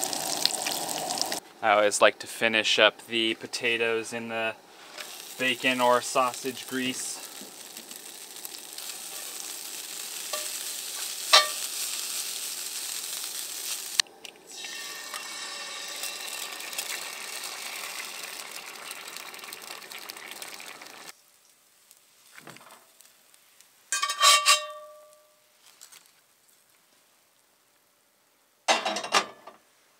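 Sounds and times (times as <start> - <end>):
potatoes sizzling in grease: 0.0 - 1.4, 4.7 - 24.1
utensil clinking against pan: 11.3 - 11.6
ringing metal clank: 24.0 - 25.3.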